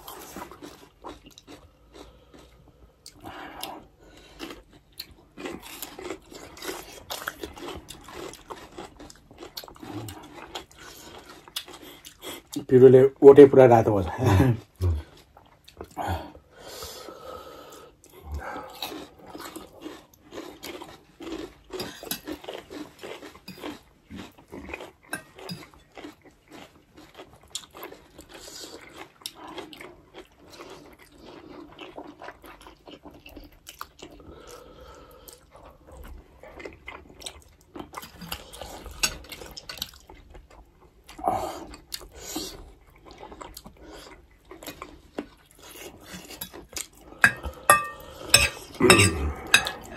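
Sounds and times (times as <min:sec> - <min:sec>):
chewing and slurping noodles: 0:00.0 - 0:12.7, 0:14.6 - 0:49.9
fork clinking on plate: 0:47.3 - 0:49.9.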